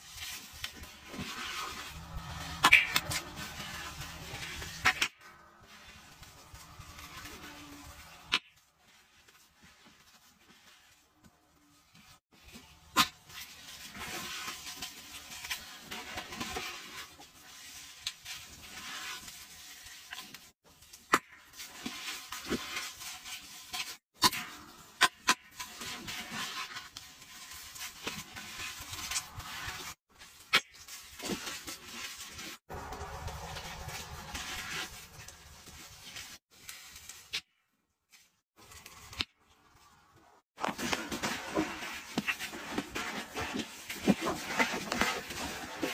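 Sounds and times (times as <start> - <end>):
gritty powder crunching: 0.0 - 20.6, 24.6 - 45.9
sharp crackles: 26.8 - 45.9.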